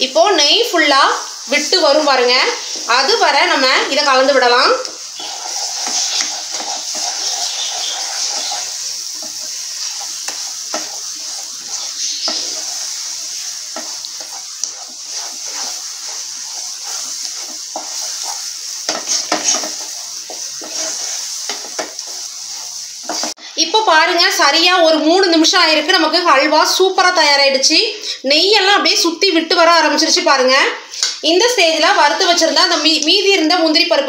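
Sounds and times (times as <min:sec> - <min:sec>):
sizzling fat: 0:00.0 - 0:27.6, 0:28.4 - 0:34.0
spatula scraping a pan: 0:00.2 - 0:23.5, 0:31.6 - 0:33.2.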